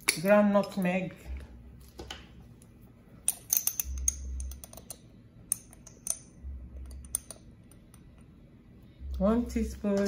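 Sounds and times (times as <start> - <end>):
glass jar clinking on metal spoon: 3.3 - 6.4.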